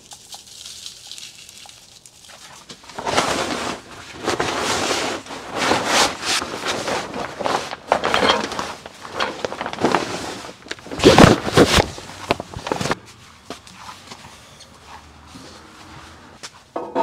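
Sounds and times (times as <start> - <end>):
fabric cover rustling and flapping: 2.8 - 13.0.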